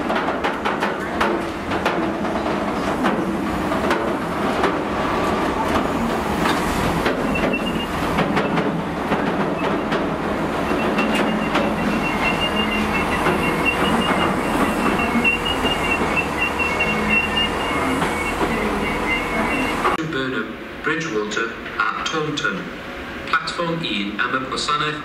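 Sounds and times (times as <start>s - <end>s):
freight wagons rolling past: 0.0s - 20.0s
high wheel squeal: 7.1s - 8.6s, 9.6s - 20.0s.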